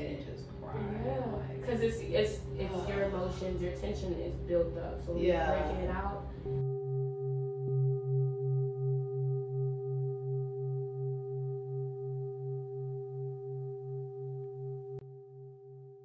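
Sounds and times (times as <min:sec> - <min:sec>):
singing bowl ringing: 0:05.4 - 0:16.0.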